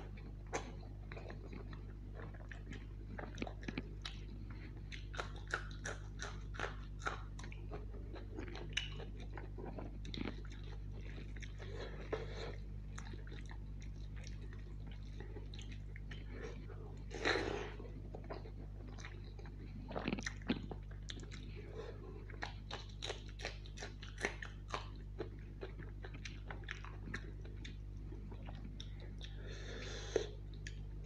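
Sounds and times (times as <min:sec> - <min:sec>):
steady low hum: 0:00.0 - 0:31.0
mouth chewing wet smacks: 0:00.5 - 0:12.2, 0:22.2 - 0:29.4.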